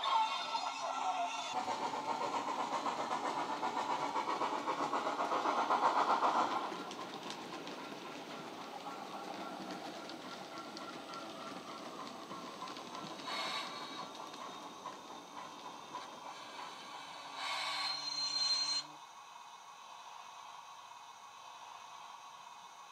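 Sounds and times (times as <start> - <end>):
model steam locomotive chuffs: 0.0 - 22.9
steam hiss: 0.0 - 22.9.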